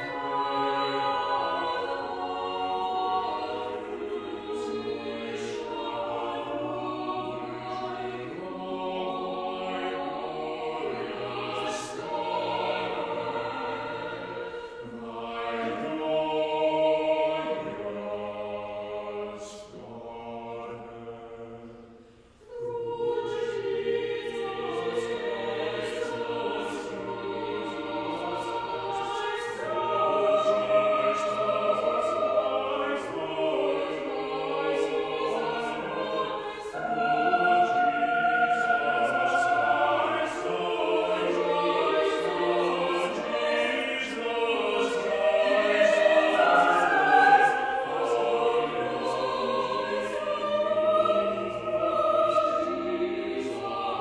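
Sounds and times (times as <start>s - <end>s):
choir singing in parts: 0.0s - 54.0s.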